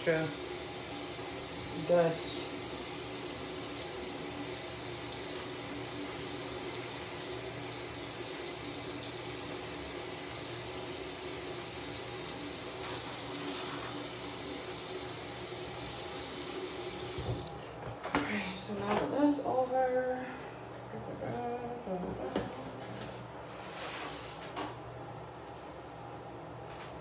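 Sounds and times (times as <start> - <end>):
sink tap running: 0.0 - 17.6.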